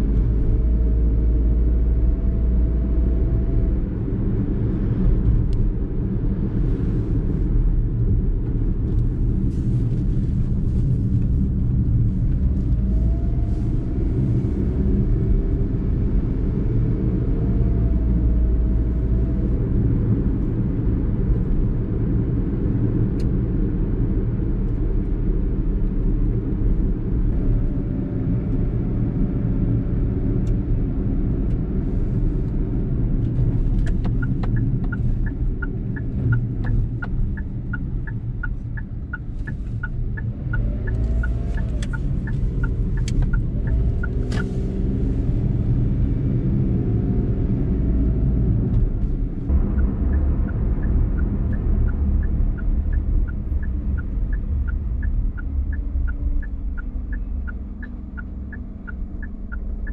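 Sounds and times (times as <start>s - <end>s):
car engine and road noise rumble: 0.0s - 59.9s
turn signal ticking: 31.3s - 59.9s.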